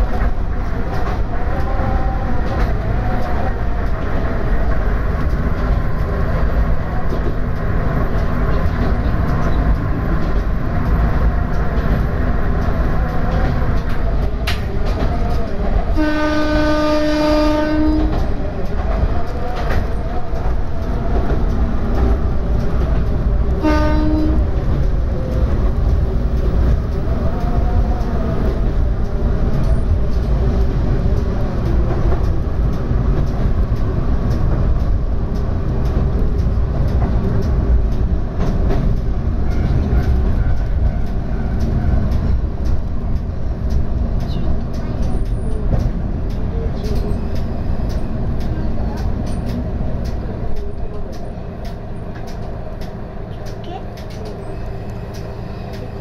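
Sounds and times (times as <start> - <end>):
diesel engine and rail rumble: 0.0 - 56.0
train horn blasts: 15.9 - 18.3, 23.6 - 24.5.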